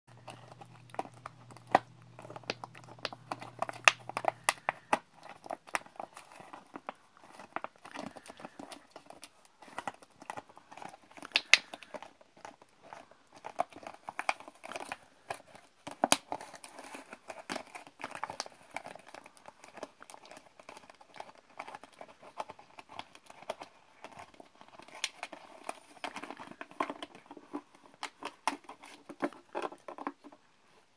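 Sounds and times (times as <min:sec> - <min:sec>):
dog chewing plastic bottle: 0:00.1 - 0:30.4
plastic cracking: 0:00.1 - 0:30.4.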